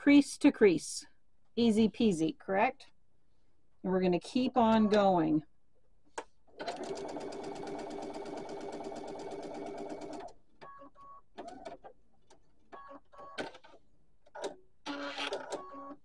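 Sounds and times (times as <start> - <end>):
electric sewing machine stitching: 6.6 - 10.3.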